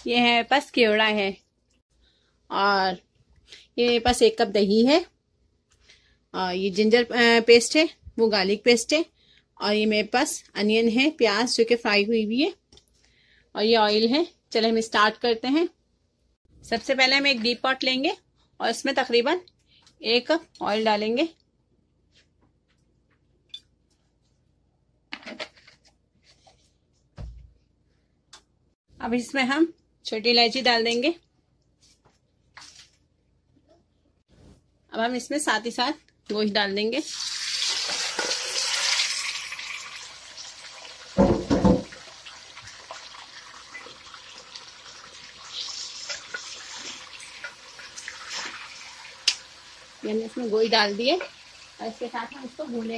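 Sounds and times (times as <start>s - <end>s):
meat sizzling in hot oil: 37.0s - 52.9s
dull knock: 41.2s - 41.9s.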